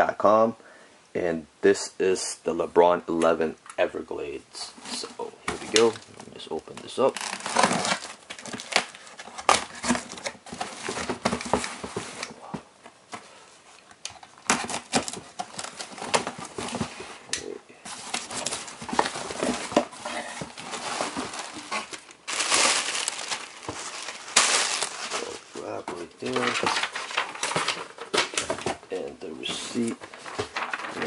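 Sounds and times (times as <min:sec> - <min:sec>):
packing material crinkling: 0:04.9 - 0:12.5, 0:17.9 - 0:31.0
cardboard box being opened: 0:07.1 - 0:12.4, 0:17.9 - 0:25.4, 0:29.7 - 0:31.0.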